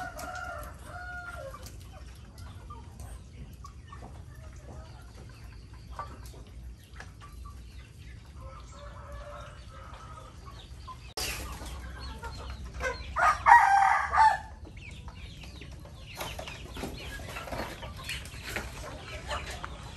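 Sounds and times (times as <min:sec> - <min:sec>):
chickens clucking: 0:00.0 - 0:19.9
rooster crowing: 0:13.2 - 0:14.5.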